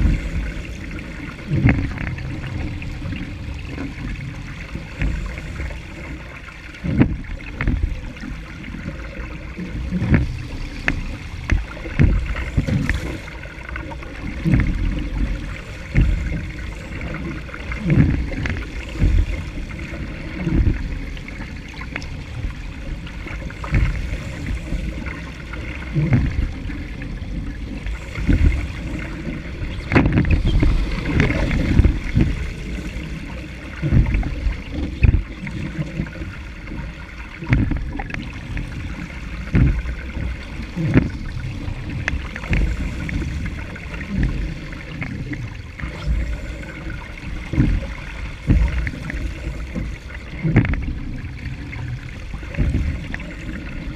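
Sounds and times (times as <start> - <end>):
wind buffeting microphone: 0.0 - 6.0, 25.9 - 36.6
water splashing along boat hull: 0.0 - 53.9.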